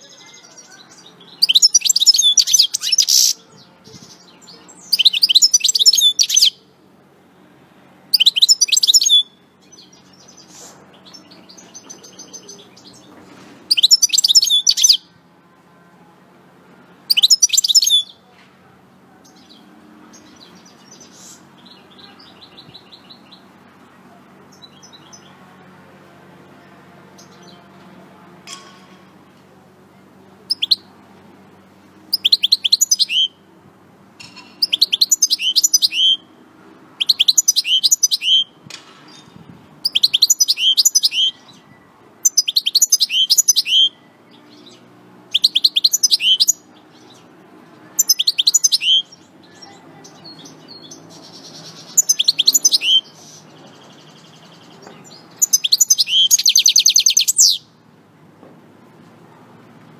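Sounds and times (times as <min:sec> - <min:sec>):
goldfinch twittering song: 0:00.1 - 0:06.6, 0:08.1 - 0:13.1, 0:13.7 - 0:15.0, 0:17.1 - 0:18.2, 0:30.5 - 0:30.9, 0:32.1 - 0:33.4, 0:34.2 - 0:36.3, 0:37.0 - 0:47.3, 0:48.0 - 0:57.7.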